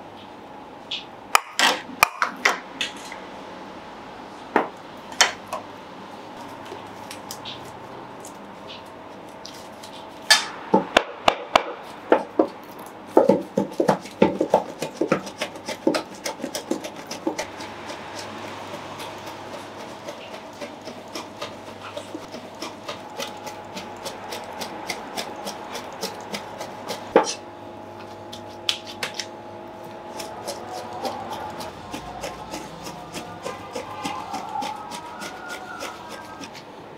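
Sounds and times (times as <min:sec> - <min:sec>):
cleaver chopping meat on board: 0:10.3 - 0:27.4, 0:30.1 - 0:36.6.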